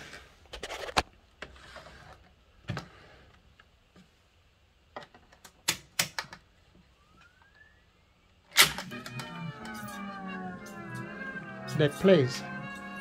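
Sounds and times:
recorded music from tape: 6.8s - 13.0s.

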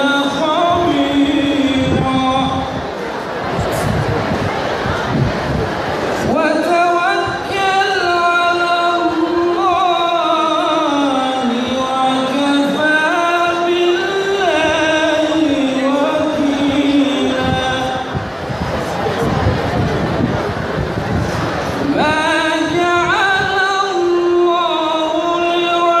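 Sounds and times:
man chanting: 0.0s - 2.8s, 6.3s - 18.3s, 21.8s - 26.0s.

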